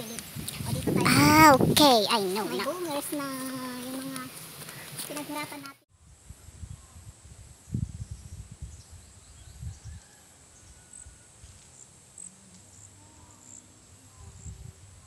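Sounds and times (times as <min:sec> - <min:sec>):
insects chirping: 0:11.6 - 0:14.6.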